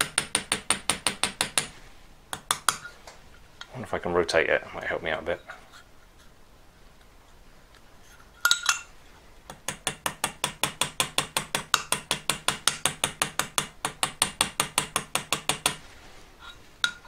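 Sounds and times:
small hammer tapping metal pin: 0.0s - 1.7s, 9.5s - 15.8s.

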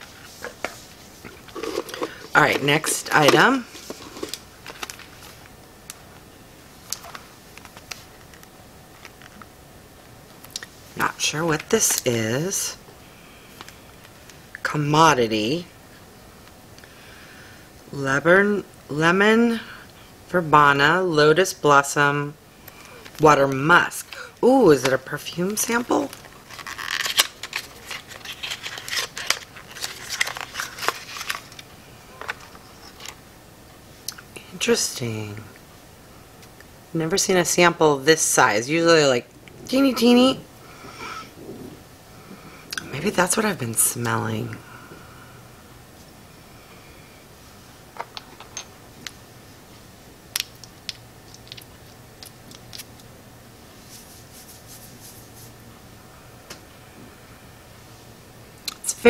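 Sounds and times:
vial and packaging clicks and rustles: 0.4s - 5.3s, 26.0s - 33.2s, 50.4s - 53.1s.

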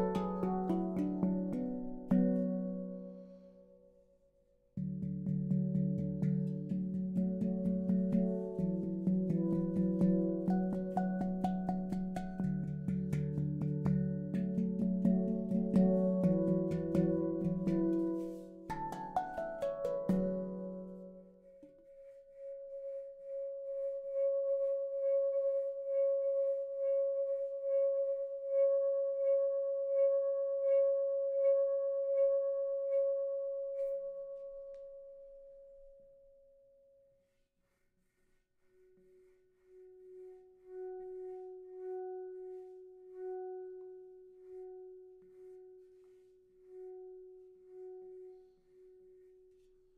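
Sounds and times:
handpan ringing tone: 0.0s - 3.6s, 4.8s - 21.9s.

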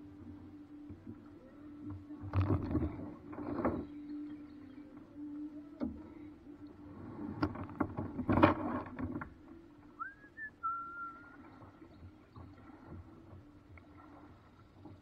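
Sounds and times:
whistle: 10.0s - 11.4s.

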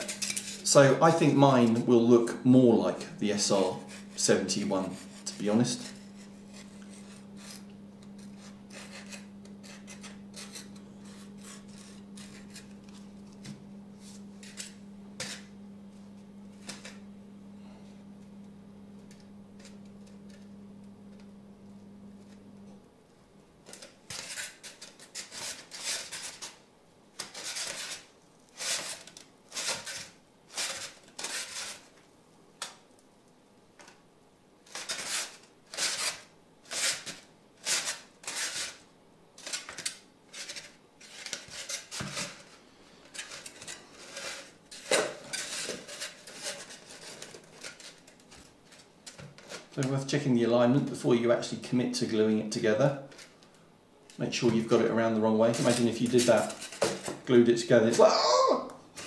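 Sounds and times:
foam pieces scraping together: 3.4s - 13.0s, 23.7s - 26.6s, 27.2s - 31.9s, 34.6s - 38.8s, 39.4s - 49.8s, 55.5s - 57.2s.

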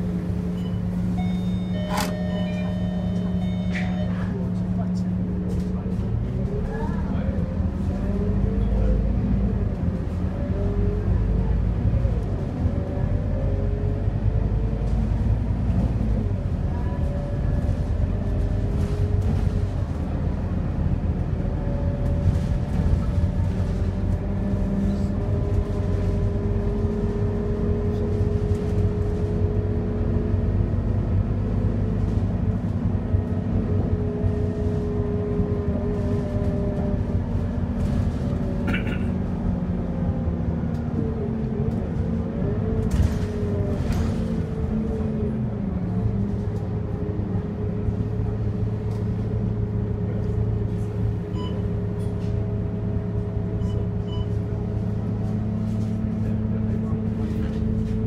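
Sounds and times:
bus engine rumble: 0.0s - 58.0s
road noise: 0.0s - 58.0s.

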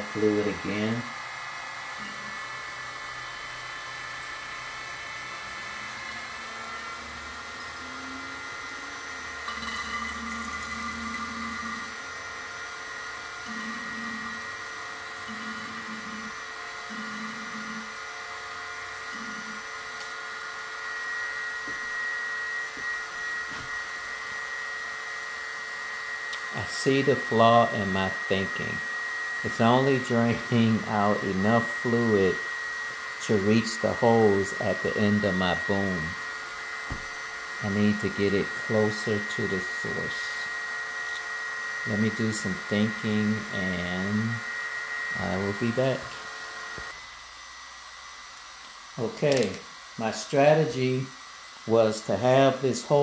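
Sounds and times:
hydraulic pump whining: 0.0s - 47.1s
lower hum: 5.7s - 12.5s, 13.3s - 20.1s.

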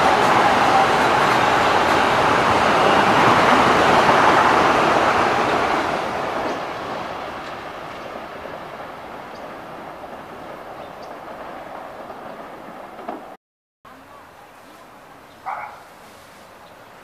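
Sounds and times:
train wheels on rails: 0.0s - 13.4s.

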